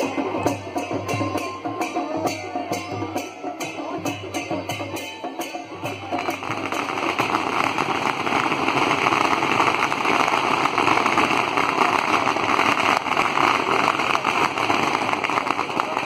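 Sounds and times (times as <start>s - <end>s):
firecrackers popping: 5.4s - 16.0s.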